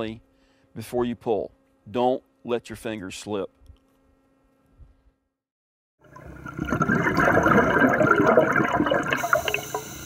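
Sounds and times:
water bubbling and gurgling: 0:06.0 - 0:10.0.

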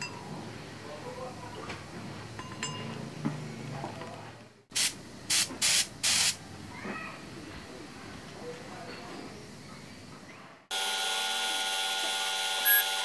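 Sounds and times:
metal spoon clinking cup: 0:02.4 - 0:03.0
spray gun hissing: 0:04.7 - 0:06.4.

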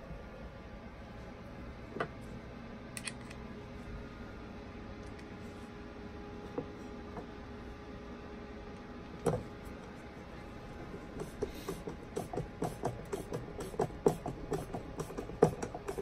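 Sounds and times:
screwdriver click: 0:03.0 - 0:03.4.

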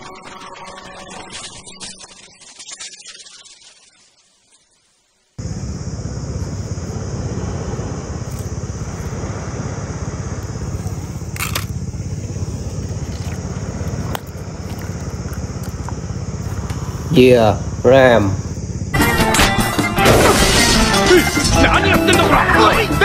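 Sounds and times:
constant hiss: 0:02.4 - 0:20.0
low rumble: 0:05.4 - 0:18.9.

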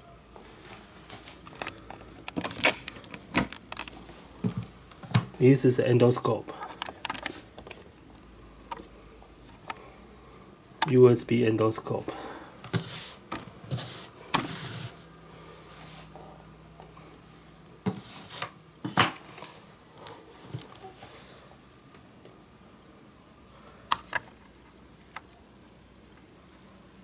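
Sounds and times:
cable handling clicks and rustles: 0:00.4 - 0:05.5, 0:06.2 - 0:09.8.

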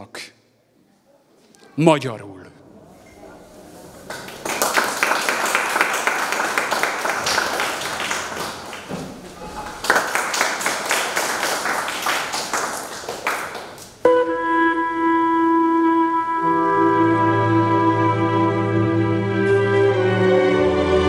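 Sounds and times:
audience applauding: 0:04.0 - 0:14.1
held instrumental note: 0:14.1 - 0:21.0.

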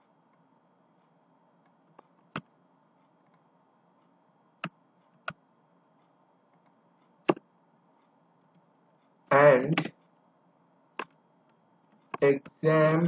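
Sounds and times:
mouse and keyboard clicks: 0:11.0 - 0:11.2.

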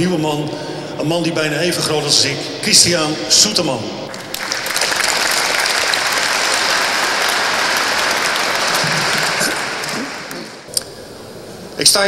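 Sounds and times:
audience applauding: 0:04.1 - 0:10.7.

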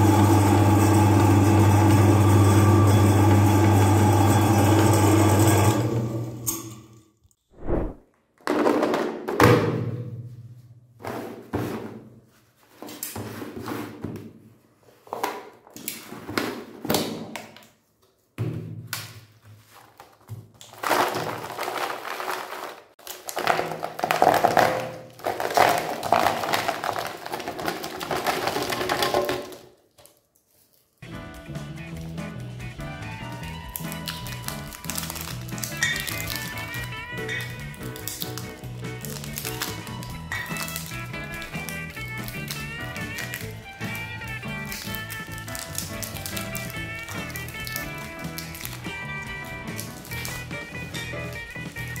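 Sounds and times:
meat grinder motor running: 0:00.0 - 0:06.5, 0:31.0 - 0:52.0
wrapped chocolates rustling and knocking: 0:18.0 - 0:31.1, 0:33.0 - 0:52.0.

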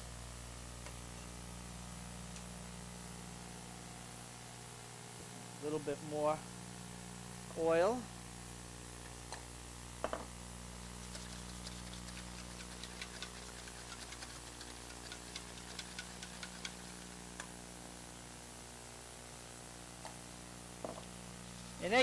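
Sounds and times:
steady low hum: 0:00.0 - 0:22.0
knock: 0:10.0 - 0:10.3
whisk ticking against steel bowl: 0:11.0 - 0:17.5.

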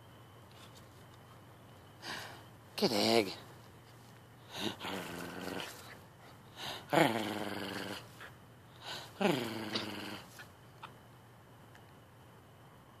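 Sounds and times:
puppy growling: 0:04.5 - 0:06.0, 0:06.6 - 0:10.5.

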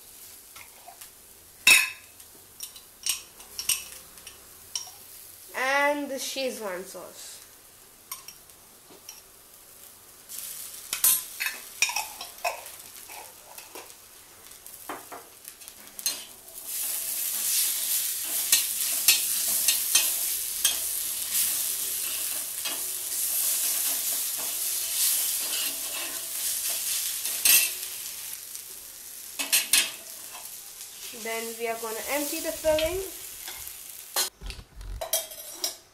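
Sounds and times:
loud sizzle: 0:00.0 - 0:35.8
metal spatula scraping wok: 0:16.0 - 0:28.0.

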